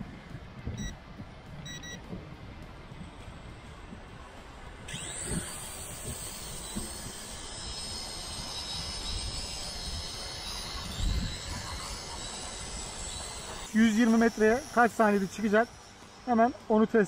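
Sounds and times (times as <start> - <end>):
drone motors high-pitched buzz: 0.0 - 17.0.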